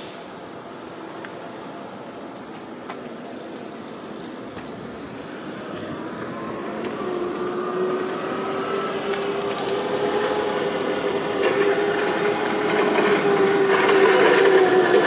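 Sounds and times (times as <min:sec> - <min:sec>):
forklift engine running: 0:00.3 - 0:15.0
rising whine: 0:04.7 - 0:15.0.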